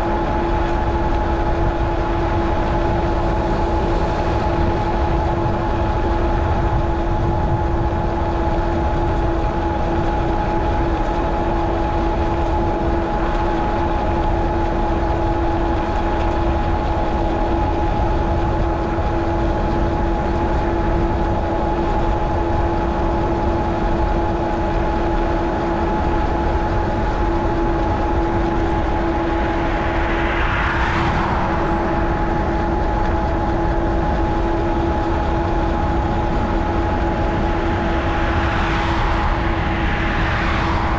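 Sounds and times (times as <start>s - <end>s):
wind noise: 0.0s - 40.9s
road noise: 25.6s - 40.9s.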